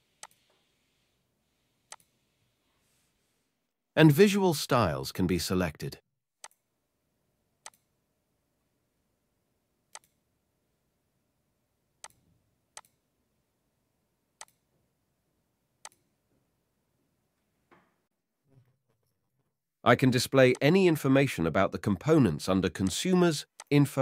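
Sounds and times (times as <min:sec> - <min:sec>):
computer mouse clicks: 0:00.2 - 0:00.5, 0:01.9 - 0:02.1, 0:06.4 - 0:06.6, 0:07.6 - 0:07.9, 0:09.9 - 0:10.2, 0:12.0 - 0:12.2, 0:12.8 - 0:13.0, 0:14.4 - 0:14.6, 0:15.8 - 0:16.1.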